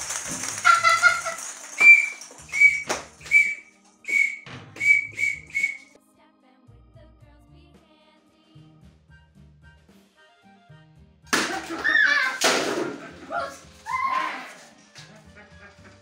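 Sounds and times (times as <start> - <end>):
sharp whistle blasts: 1.8 - 5.9
low whistle tone: 1.8 - 6.0.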